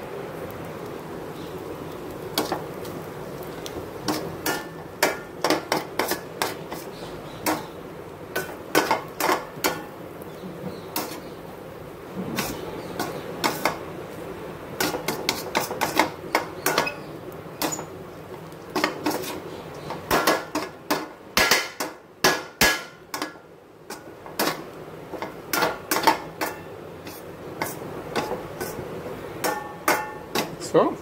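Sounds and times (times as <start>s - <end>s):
metal spatula scraping a pan: 4.0s - 10.0s, 10.9s - 11.4s, 12.3s - 13.8s, 14.8s - 18.0s, 18.8s - 21.9s, 22.6s - 30.6s.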